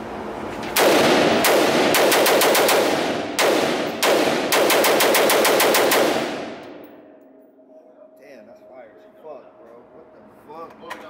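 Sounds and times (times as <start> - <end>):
rifle firing rapid shots: 0.8 - 6.8.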